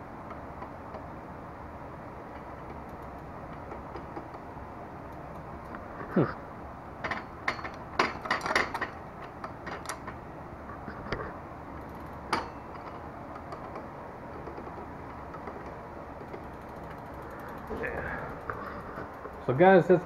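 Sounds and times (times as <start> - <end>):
wheel spinning with light ticking: 2.1 - 6.1, 11.0 - 20.0
bike chain clattering and clicking: 11.7 - 20.0.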